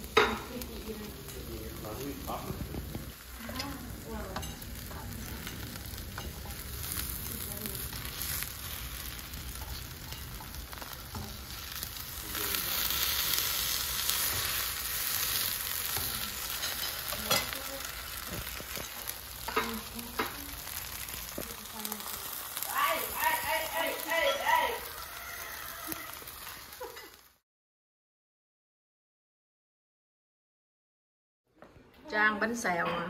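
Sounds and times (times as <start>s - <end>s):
batter sizzling in a frying pan: 0.0s - 27.4s
spatula scraping a pan: 12.7s - 21.4s.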